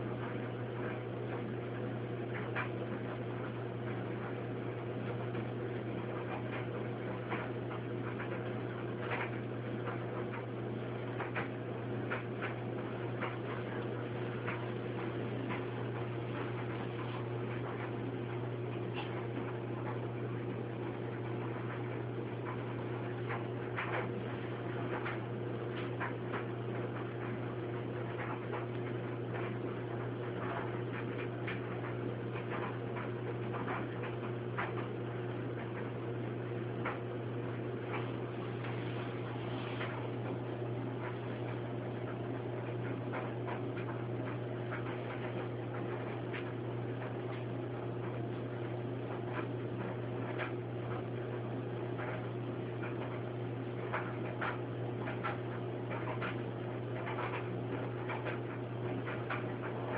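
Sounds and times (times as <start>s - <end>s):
steady low hum: 0.0s - 59.9s
faint irregular clicks: 2.3s - 59.9s.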